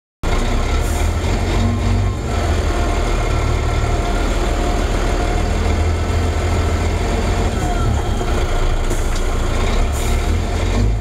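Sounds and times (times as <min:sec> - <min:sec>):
diesel engine idling from cab: 0:01.6 - 0:11.0.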